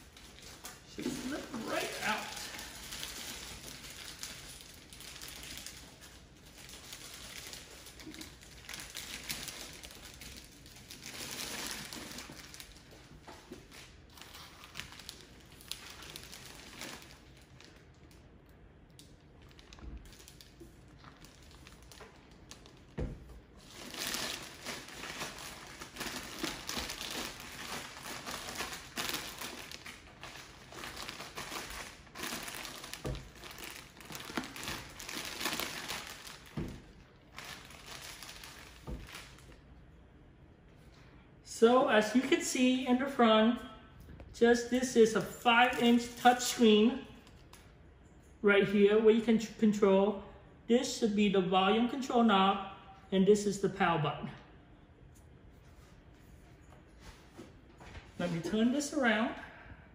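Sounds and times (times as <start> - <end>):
plastic wrap crinkling: 0.0 - 39.8.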